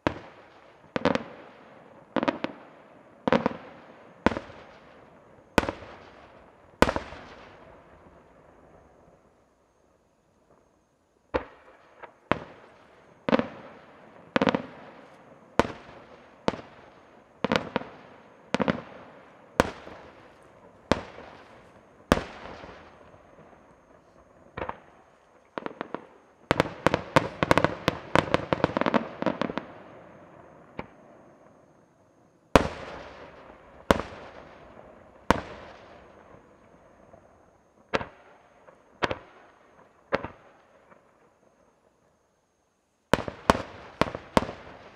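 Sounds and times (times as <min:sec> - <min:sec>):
fireworks bursting with echo: 0:00.0 - 0:09.4, 0:11.3 - 0:31.8, 0:32.5 - 0:41.7, 0:43.1 - 0:44.9.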